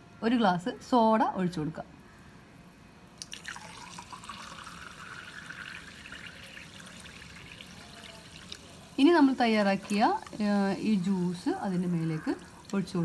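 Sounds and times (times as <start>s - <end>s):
soda water pouring and fizzing: 3.2s - 11.6s.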